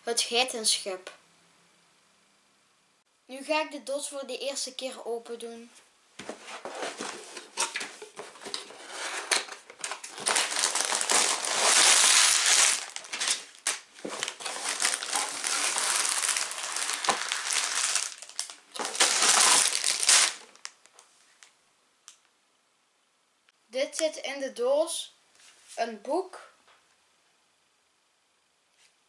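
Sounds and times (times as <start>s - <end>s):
cardboard box being opened: 6.3s - 20.4s
plastic bags crinkling: 6.8s - 20.9s.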